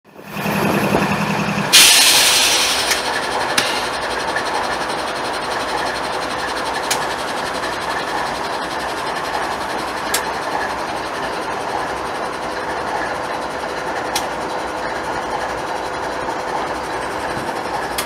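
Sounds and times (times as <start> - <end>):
diesel locomotive engine running: 0.1 - 18.0
train wheels rumbling on rails: 0.1 - 18.0
loud air hiss: 1.7 - 4.0.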